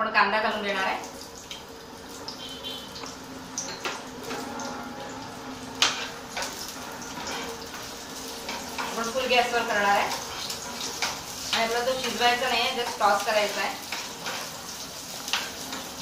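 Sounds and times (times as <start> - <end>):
onion sizzling in frying pan: 0.4 - 16.0
spatula scraping and knocking pan: 5.8 - 12.2.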